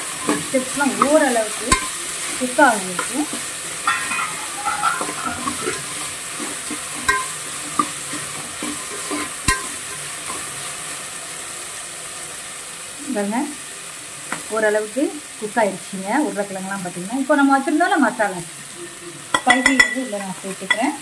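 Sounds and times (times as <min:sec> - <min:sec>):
vegetables sizzling in a pot: 0:00.0 - 0:21.0
metal ladle scraping a pot: 0:03.0 - 0:10.4
ladle knocking against pot: 0:03.8 - 0:05.8.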